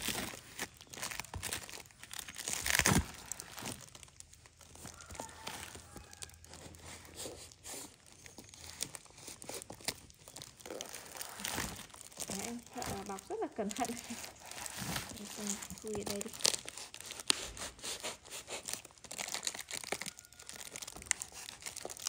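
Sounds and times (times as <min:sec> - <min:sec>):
knife cutting plastic wrapping: 0:00.0 - 0:22.0
plastic crinkling and tearing: 0:00.0 - 0:22.0.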